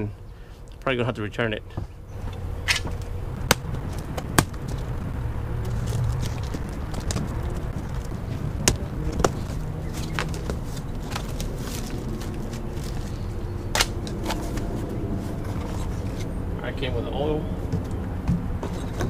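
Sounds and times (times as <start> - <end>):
low background rumble: 0.0 - 19.0
cardboard box being opened: 5.6 - 13.2.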